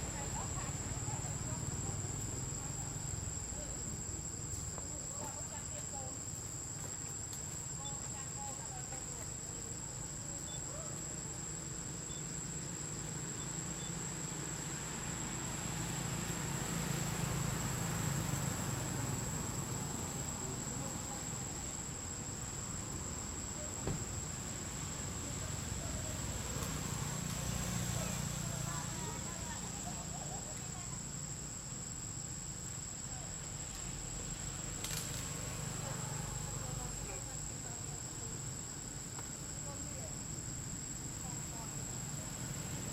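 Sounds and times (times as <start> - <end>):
insects buzzing: 0.0 - 42.9.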